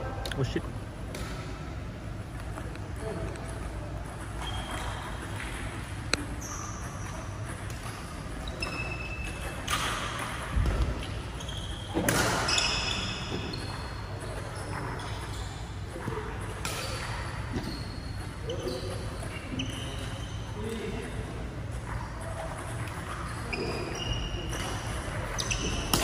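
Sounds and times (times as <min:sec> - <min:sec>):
sneakers squeaking on court: 0:04.1 - 0:20.7, 0:21.9 - 0:26.0
racket striking shuttlecock: 0:25.6 - 0:26.0.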